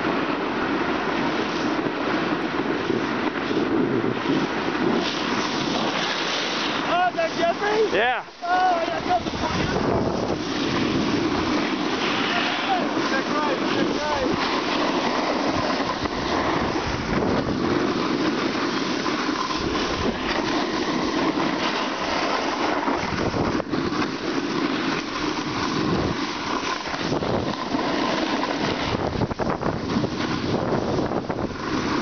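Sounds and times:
snowboard scraping over snow: 0:00.0 - 0:32.0
wind rushing over microphone: 0:00.0 - 0:32.0.

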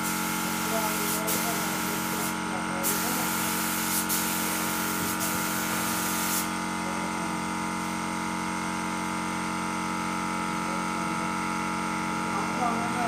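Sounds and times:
spray gun hissing: 0:00.0 - 0:06.5
steady machine hum: 0:00.0 - 0:13.0.

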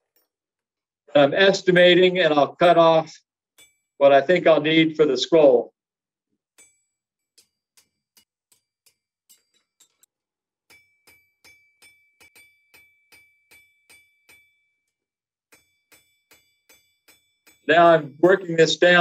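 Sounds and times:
anvil metallic ring: 0:03.6 - 0:04.0, 0:06.6 - 0:10.0, 0:10.7 - 0:14.8, 0:15.5 - 0:19.0.

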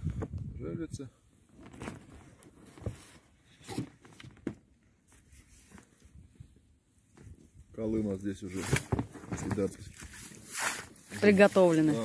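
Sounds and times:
knocks and scrapes in boat: 0:08.5 - 0:12.0.

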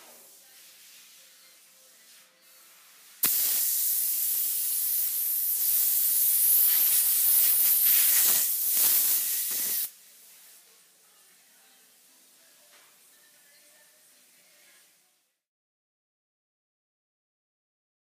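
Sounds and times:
hiss of rushing air: 0:03.0 - 0:09.9.

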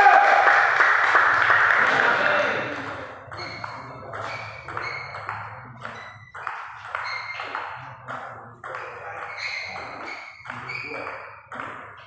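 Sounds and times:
table tennis ball pinging: 0:02.7 - 0:12.0.

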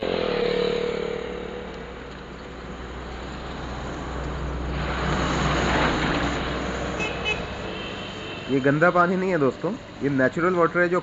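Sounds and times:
motorcycle passing: 0:00.0 - 0:07.6
road noise: 0:00.0 - 0:11.0.

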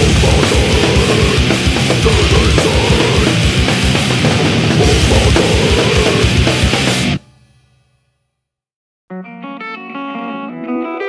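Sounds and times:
distorted guitars: 0:00.0 - 0:07.5
pounding kick drum: 0:00.0 - 0:07.6.

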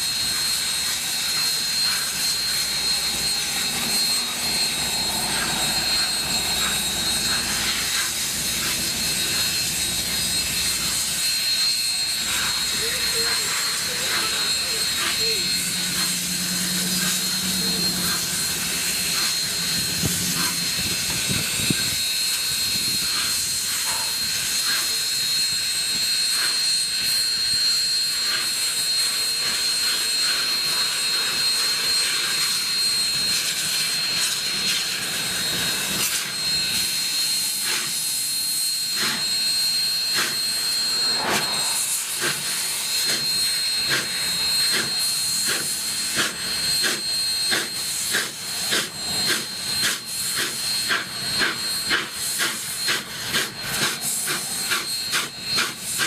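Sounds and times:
steam hissing: 0:00.0 - 0:56.0
thin high whine: 0:00.0 - 0:56.0.

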